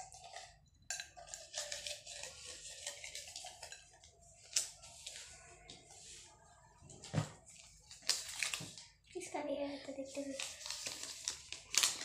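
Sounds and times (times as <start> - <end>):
paper slips rustling in plastic cup: 10.2 - 12.0.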